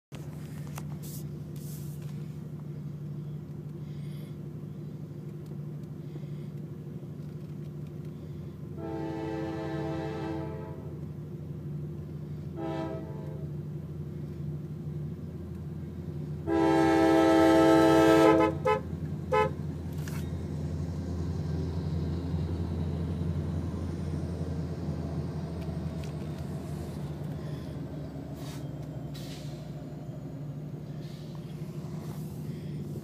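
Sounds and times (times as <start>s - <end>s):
low engine rumble: 0.1s - 33.0s
locomotive air horn blasts: 8.8s - 11.0s, 12.5s - 13.5s, 16.4s - 19.7s.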